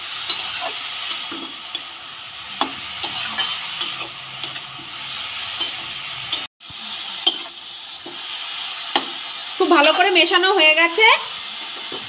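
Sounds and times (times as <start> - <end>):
cabbage sizzling in oil: 0.0 - 12.0
metal spatula scraping pan: 0.2 - 1.9, 2.5 - 6.5.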